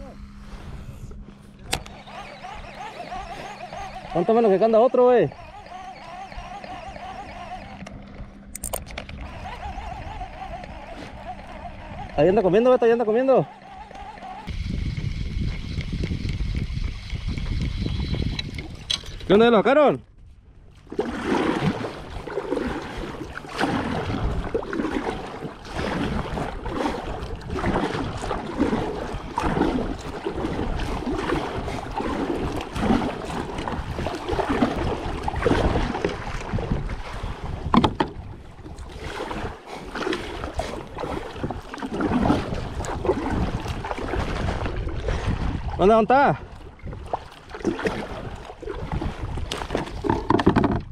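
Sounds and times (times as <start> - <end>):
water splashing against kayak hull: 0.7 - 19.8, 20.6 - 50.9
wind buffeting microphone: 13.8 - 19.7, 21.2 - 50.9
knock on kayak: 37.7 - 38.2, 49.7 - 50.9.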